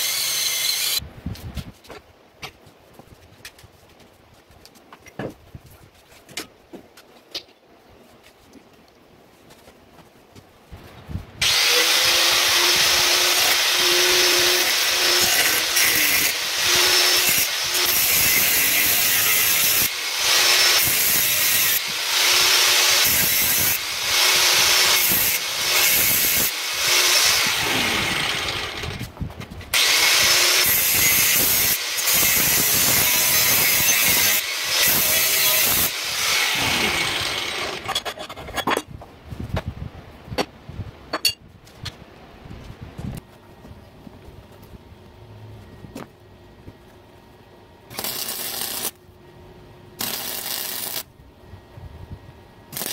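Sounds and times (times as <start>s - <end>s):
angle grinder grinding metal: 0.0s - 1.0s, 11.4s - 29.1s, 29.8s - 38.2s.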